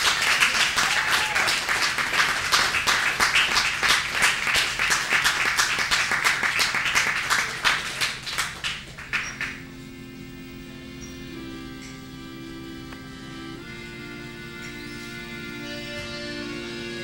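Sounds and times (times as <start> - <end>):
audience cheering: 0.0 - 3.6
audience applauding: 0.0 - 9.7.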